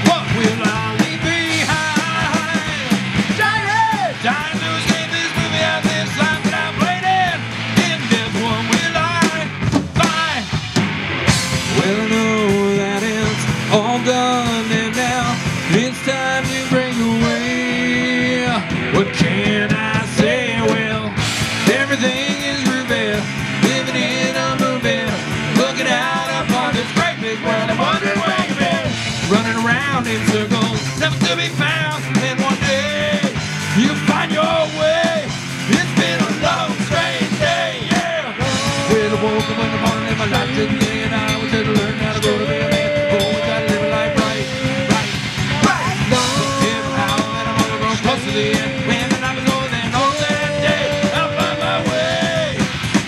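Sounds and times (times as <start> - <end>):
live rock band playing: 0.0 - 53.0.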